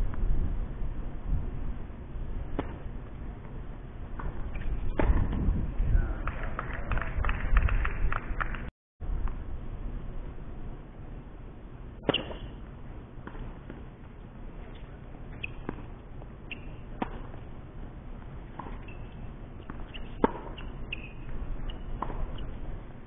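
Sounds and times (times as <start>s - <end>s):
low rumble: 0.0s - 23.0s
racket striking tennis ball: 2.5s - 3.0s, 4.2s - 5.5s, 12.0s - 12.6s, 14.6s - 23.0s
tennis ball bouncing: 2.5s - 3.6s, 4.2s - 5.4s, 12.0s - 23.0s.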